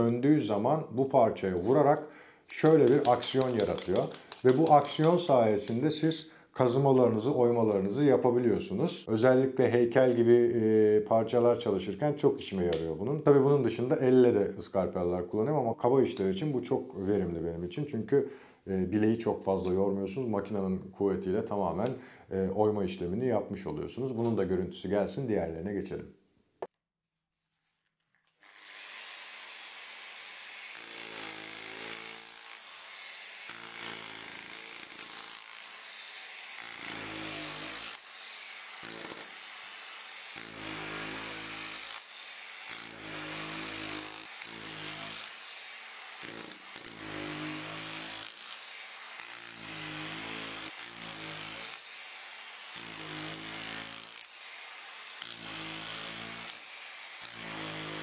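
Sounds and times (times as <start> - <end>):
angle grinder motor whine: 28.4 - 57.4.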